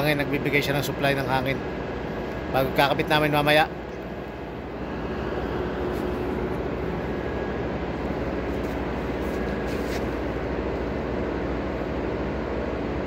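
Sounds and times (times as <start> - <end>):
low hum: 1.6 - 13.0.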